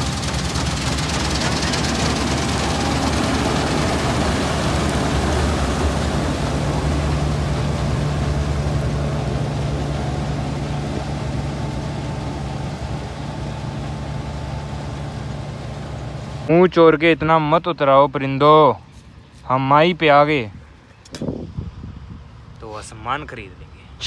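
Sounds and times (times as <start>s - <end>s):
combine harvester running: 0.0s - 17.0s.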